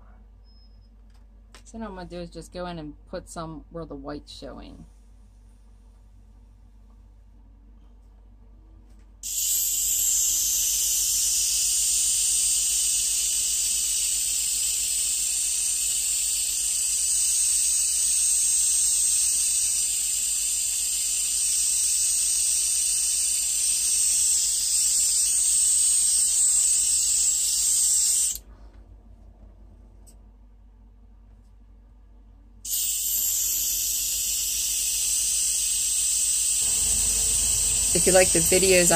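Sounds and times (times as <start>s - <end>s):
airbrush hissing: 9.2s - 28.4s, 32.7s - 38.9s.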